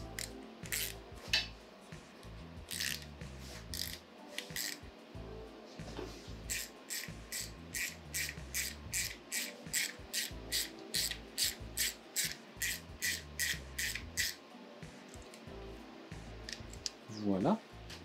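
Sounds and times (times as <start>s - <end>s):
hand ratchet rasping: 0.1s - 1.0s, 2.7s - 3.1s, 3.7s - 4.0s, 6.5s - 14.4s.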